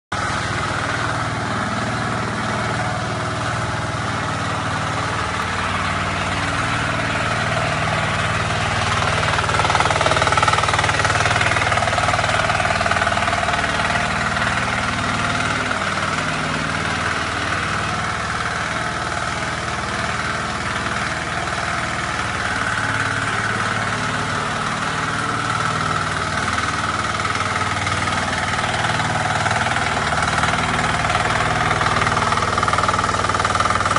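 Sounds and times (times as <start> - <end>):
small tractor engine running: 0.1 - 33.9.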